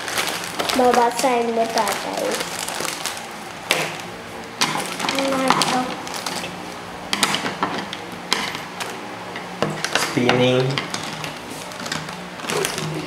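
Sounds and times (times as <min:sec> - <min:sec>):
plastic wrappers crinkling: 0:00.0 - 0:07.7, 0:09.8 - 0:13.0
child's voice: 0:00.7 - 0:02.5, 0:05.1 - 0:06.0.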